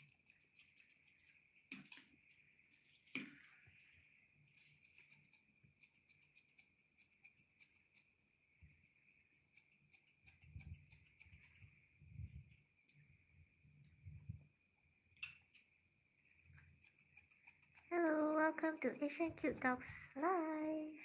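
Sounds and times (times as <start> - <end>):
scissors snipping hair: 0.0 - 2.0, 4.5 - 8.1, 8.7 - 11.7, 15.2 - 21.0.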